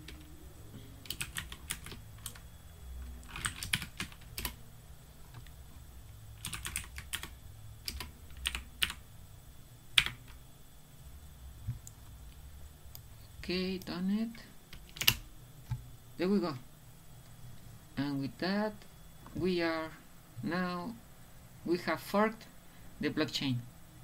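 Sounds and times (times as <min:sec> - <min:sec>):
computer keyboard typing: 0:00.0 - 0:00.3, 0:01.0 - 0:04.6, 0:06.4 - 0:09.0, 0:09.9 - 0:10.4, 0:14.7 - 0:15.8.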